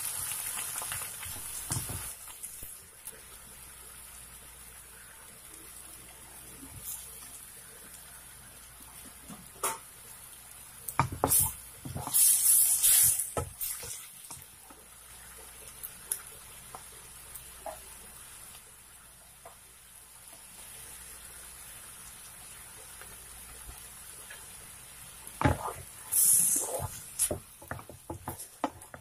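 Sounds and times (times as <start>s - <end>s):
vegetables dropped into pan sizzling: 0.0s - 3.4s, 9.0s - 18.7s
food simmering with faint sizzle: 0.0s - 29.0s.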